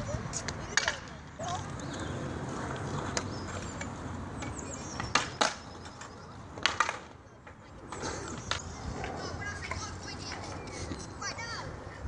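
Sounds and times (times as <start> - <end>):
scooter clacking on concrete: 0.3 - 2.1, 3.0 - 7.7, 8.4 - 10.7.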